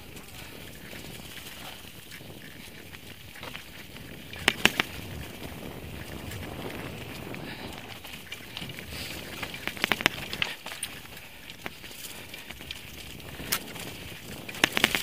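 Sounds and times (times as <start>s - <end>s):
bike clicks and rattles: 0.0s - 15.0s
bike tyres rolling on trail: 0.0s - 15.0s.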